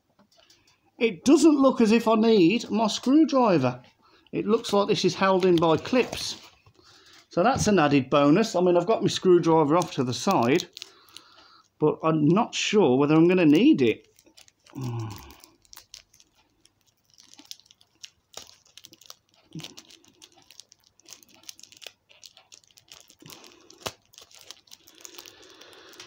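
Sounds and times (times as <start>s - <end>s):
plastic wrapper crinkling: 4.4s - 26.0s
plastic wrapper tearing: 4.5s - 7.3s, 8.8s - 11.7s, 13.0s - 26.0s
person grunting: 14.7s - 15.4s.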